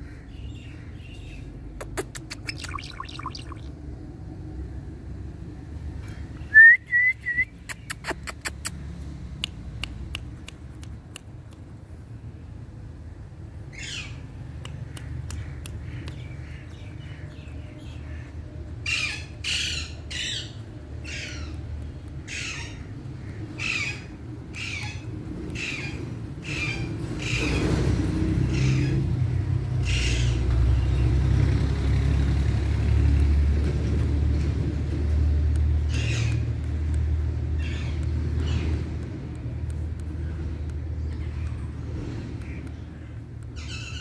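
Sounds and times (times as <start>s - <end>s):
parakeet clicks: 1.8s - 3.6s, 35.5s - 37.2s, 37.8s - 40.8s
parakeet chirps: 1.8s - 3.7s
parakeet harsh squawks: 22.3s - 22.9s.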